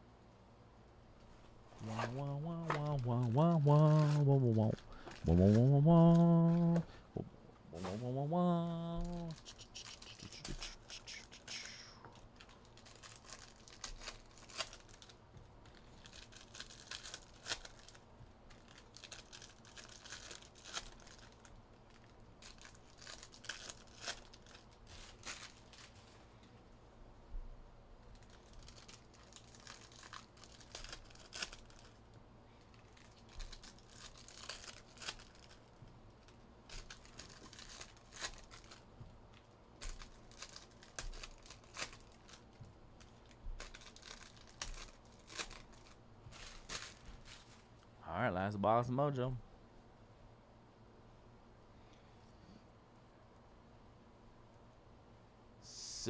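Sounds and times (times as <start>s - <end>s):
plastic wrappers crinkling and tearing: 1.8s - 6.8s, 8.0s - 26.5s, 28.0s - 47.8s.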